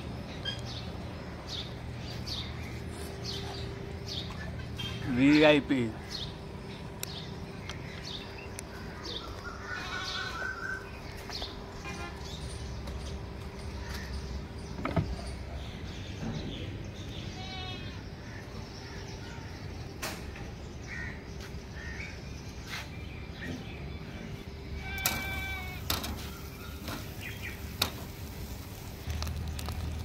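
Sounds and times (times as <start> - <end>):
goats bleating: 9.7 - 10.5, 24.8 - 25.9.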